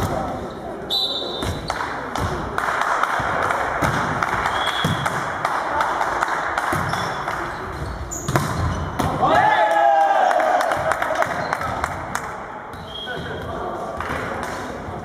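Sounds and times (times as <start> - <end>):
volleyball being hit: 1.4 - 7.4, 8.2 - 9.4.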